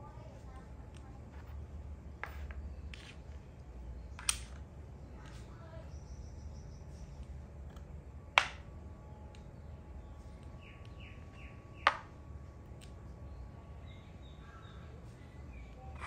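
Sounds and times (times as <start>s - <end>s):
chess pieces clacking on board: 2.2s - 3.4s.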